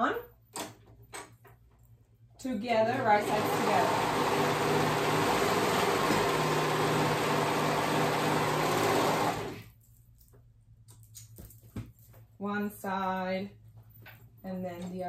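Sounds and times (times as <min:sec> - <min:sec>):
overlock sewing machine running: 0:02.8 - 0:09.6.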